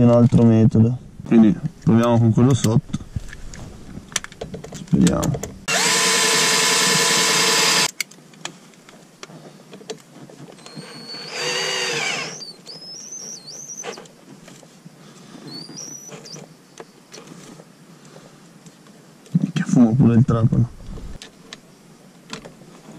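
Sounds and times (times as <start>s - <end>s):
cordless drill running: 5.7s - 7.9s, 10.6s - 12.6s.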